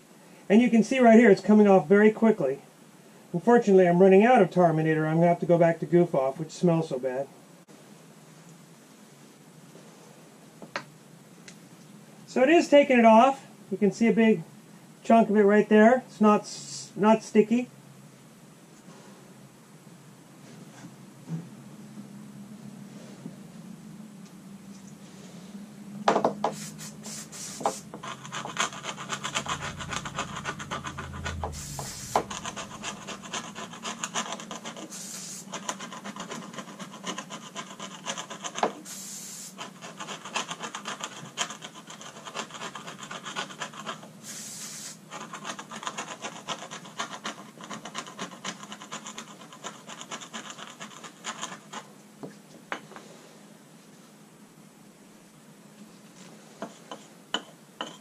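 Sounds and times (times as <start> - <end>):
brief hissing bursts: 26.4 - 28.0, 31.5 - 32.3, 34.9 - 35.5, 38.8 - 39.6, 44.2 - 45.0
scraping adhesive off deck: 26.4 - 51.9.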